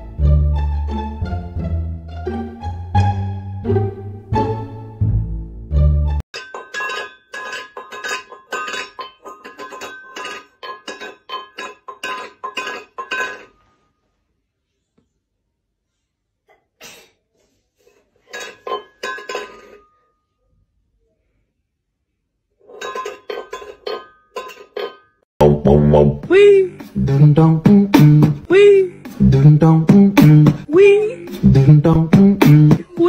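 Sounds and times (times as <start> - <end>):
rapid clinking: 6.4 - 13.6.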